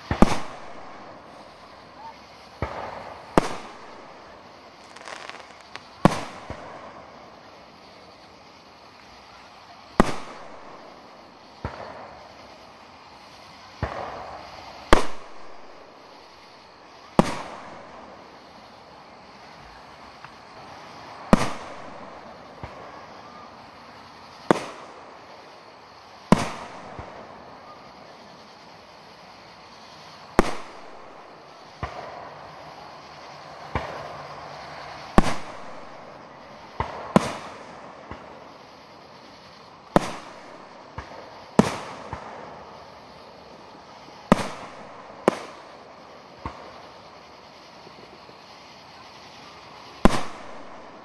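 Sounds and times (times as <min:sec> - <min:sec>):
firework shells bursting: 0:00.0 - 0:12.8, 0:33.4 - 0:51.0.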